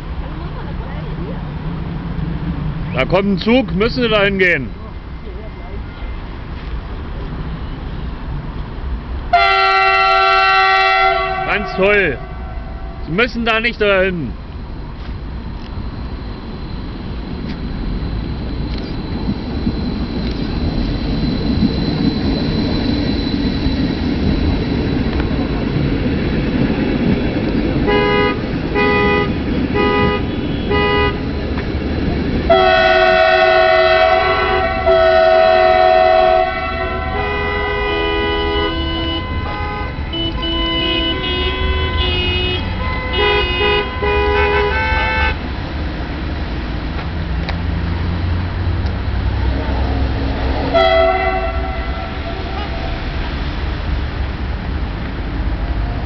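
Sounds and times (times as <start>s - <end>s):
electric train rumbling past: 0.0s - 56.0s
train horn toots and blasts: 9.3s - 13.3s, 27.8s - 31.4s, 32.5s - 45.4s, 50.6s - 53.2s.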